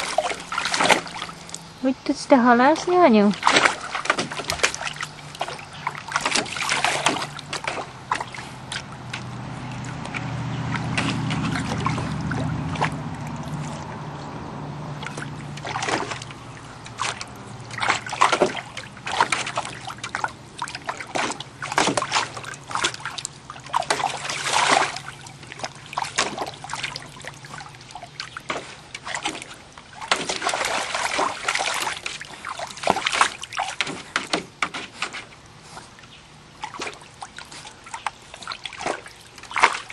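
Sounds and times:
low hum: 0.0 - 28.4
pool water splashing: 0.0 - 39.9.

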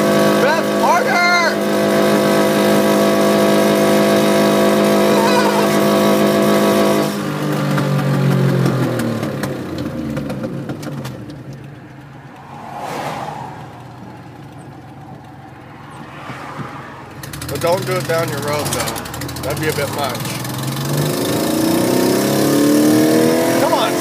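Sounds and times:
car engine at high revs: 0.0 - 24.0
road and tyre noise: 0.0 - 24.0
brief whoosh: 12.3 - 14.2.

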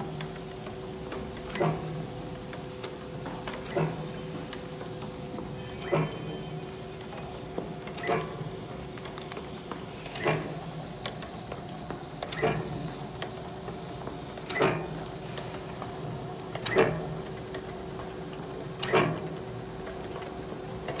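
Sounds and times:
machine humming with high whine: 0.0 - 21.0
sharp machine clack: 5.6 - 6.9.

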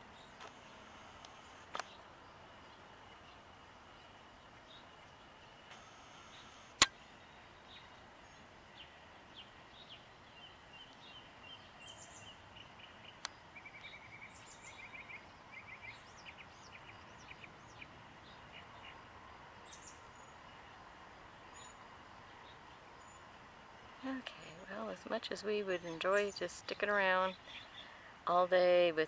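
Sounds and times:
songbirds chirping and twittering: 0.0 - 29.0
sharp click: 5.7 - 7.0.

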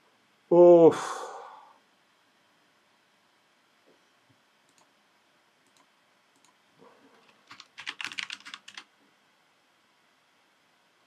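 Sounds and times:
typing on computer keyboard: 7.2 - 8.9.

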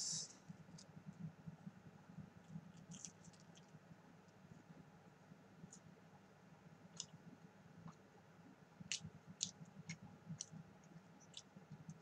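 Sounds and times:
crunchy chewing clicks: 2.4 - 3.8, 6.9 - 7.2, 8.8 - 12.0.

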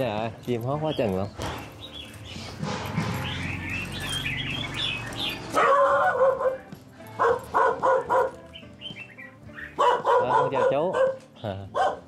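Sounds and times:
birds chirping and singing: 0.0 - 12.0
dog barking: 5.5 - 8.4, 9.6 - 12.0.

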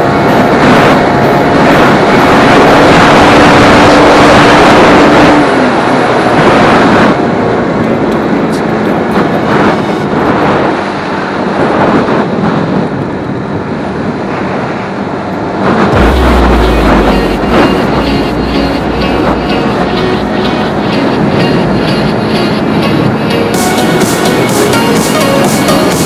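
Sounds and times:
wind rushing over microphone: 0.0 - 26.0
motorcycle engine running: 15.9 - 25.2.

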